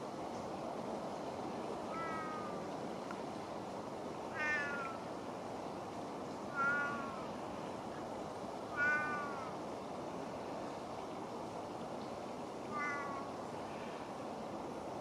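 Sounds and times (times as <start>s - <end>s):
steady background hiss: 0.0s - 15.0s
cat meowing: 1.9s - 2.6s, 4.4s - 5.0s, 6.5s - 7.2s, 8.8s - 9.5s, 12.7s - 13.3s.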